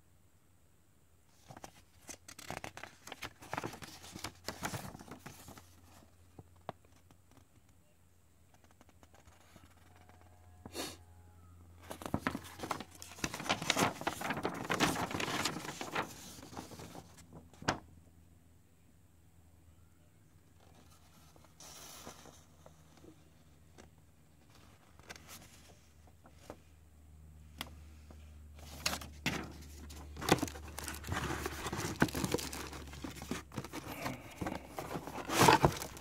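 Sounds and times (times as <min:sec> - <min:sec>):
paper rustling and crinkling: 0:01.3 - 0:07.5, 0:11.8 - 0:17.8, 0:20.6 - 0:26.6, 0:28.6 - 0:36.0.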